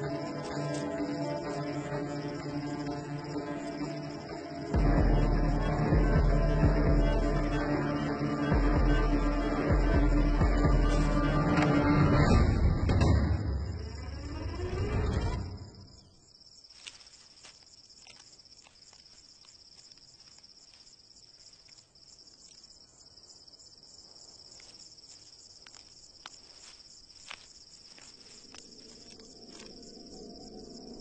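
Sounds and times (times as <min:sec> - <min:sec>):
soft music: 0:00.0 - 0:13.1
insects trilling: 0:00.0 - 0:31.0.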